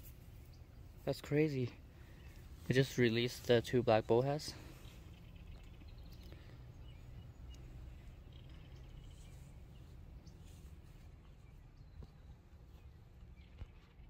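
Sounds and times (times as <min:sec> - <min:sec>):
low steady rumble: 0:00.0 - 0:14.0
faint high chirps and ticks: 0:00.2 - 0:02.6, 0:04.8 - 0:10.4.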